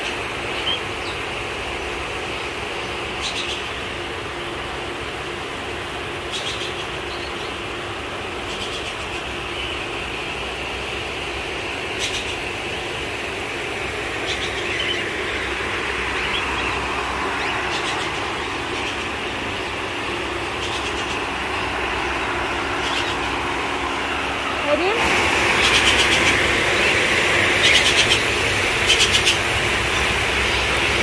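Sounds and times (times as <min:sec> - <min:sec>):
steady rushing noise: 0:07.7 - 0:31.0.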